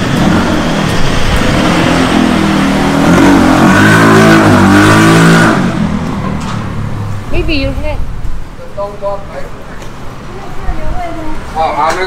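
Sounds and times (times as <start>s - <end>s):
vehicle engine accelerating: 0.0s - 8.3s.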